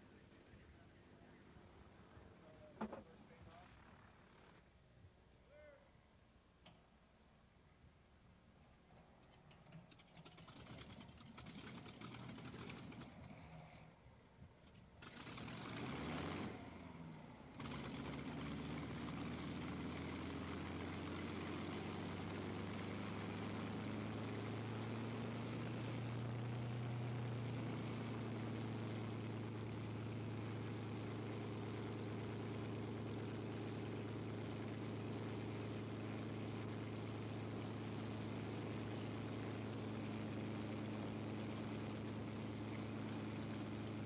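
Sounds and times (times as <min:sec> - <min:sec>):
aircraft piston engine running: 0:09.9 - 0:13.2, 0:15.0 - 0:16.8, 0:17.6 - 0:44.0.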